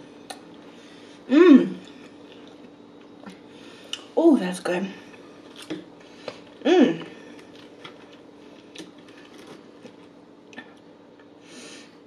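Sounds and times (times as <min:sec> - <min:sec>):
person humming: 0:01.3 - 0:01.8, 0:06.6 - 0:07.2.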